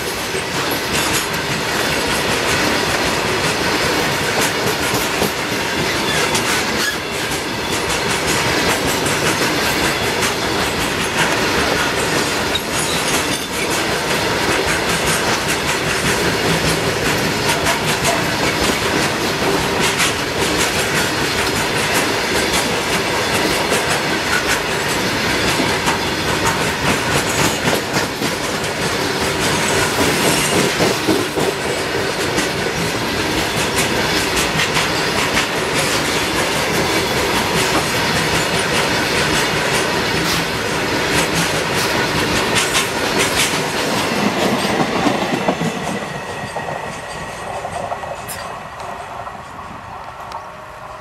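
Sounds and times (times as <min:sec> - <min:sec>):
train wheels clattering over rail joints: 0:00.0 - 0:49.6.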